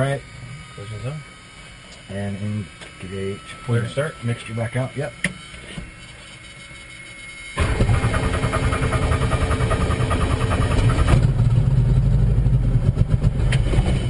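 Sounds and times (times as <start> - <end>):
helicopter piston engine running: 0.0 - 14.0
starter motor cranking: 7.6 - 11.3.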